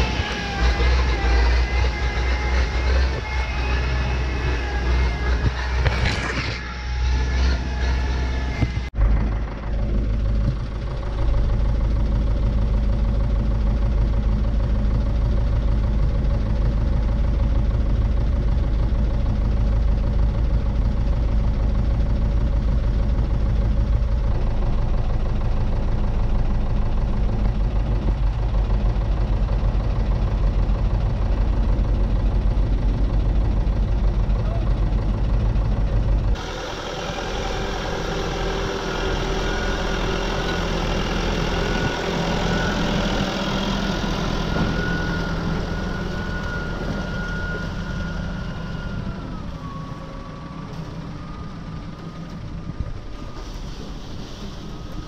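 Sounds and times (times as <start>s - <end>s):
machinery high whining tones: 0.0s - 8.9s, 36.4s - 55.0s
tractor diesel engine running: 0.0s - 55.0s.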